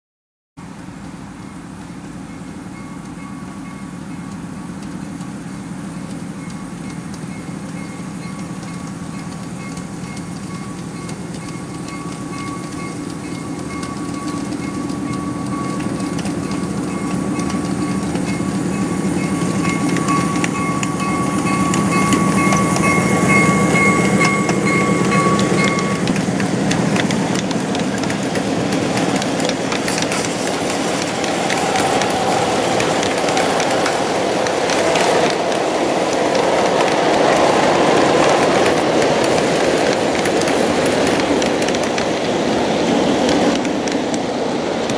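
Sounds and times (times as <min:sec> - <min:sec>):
locomotive humming: 0:00.6 - 0:44.9
wheels clicking over rail joints: 0:00.8 - 0:44.9
steady high tone: 0:05.9 - 0:26.3, 0:29.6 - 0:39.2.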